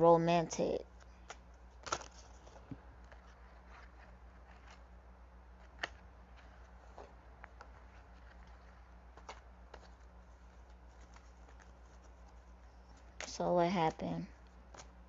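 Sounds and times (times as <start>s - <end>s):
faint low hum: 0.0s - 15.0s
cards clicking and tapping: 5.6s - 15.0s.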